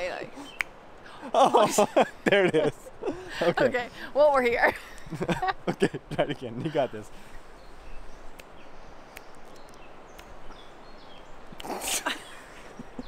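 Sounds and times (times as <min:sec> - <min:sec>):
outdoor background noise: 0:00.0 - 0:13.0
faint finger-snap clicks: 0:00.5 - 0:00.8, 0:08.3 - 0:10.4.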